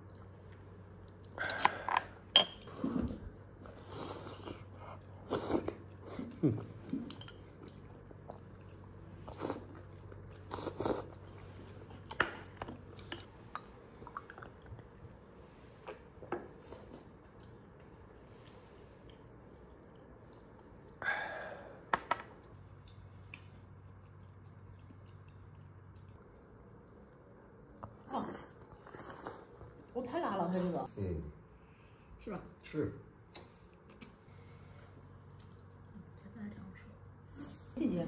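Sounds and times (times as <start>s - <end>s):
chewing: 3.7s - 15.0s, 22.4s - 30.0s.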